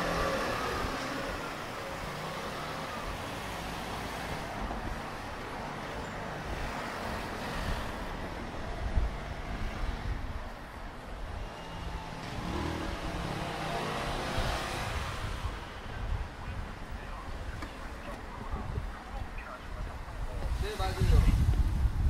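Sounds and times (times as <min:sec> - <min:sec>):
cars driving past: 0:00.0 - 0:22.0
traffic hum: 0:00.0 - 0:22.0.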